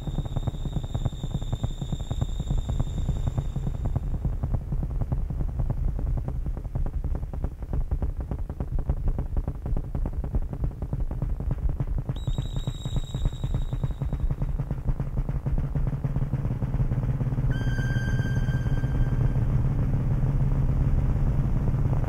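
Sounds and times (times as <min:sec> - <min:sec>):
thin high whine: 0:00.0 - 0:04.9, 0:12.1 - 0:22.0
synthesizer drone with pulse: 0:00.0 - 0:22.0.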